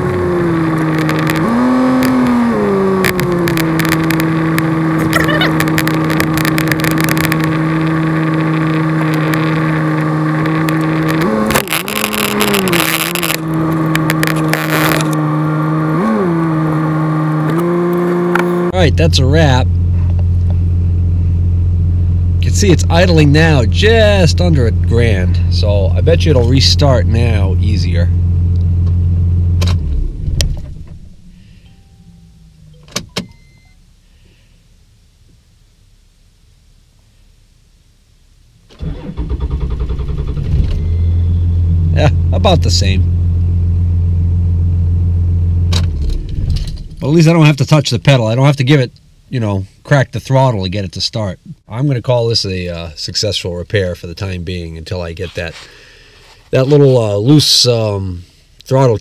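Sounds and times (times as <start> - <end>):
engine running down to a stop: 38.8 - 47.1.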